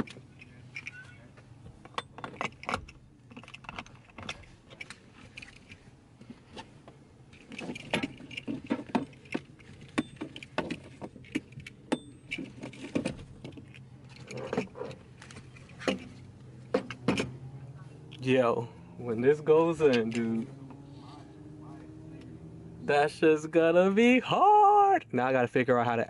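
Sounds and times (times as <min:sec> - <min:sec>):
harness metal hardware jingling: 0:00.0 - 0:05.8, 0:07.3 - 0:18.3, 0:19.1 - 0:22.0.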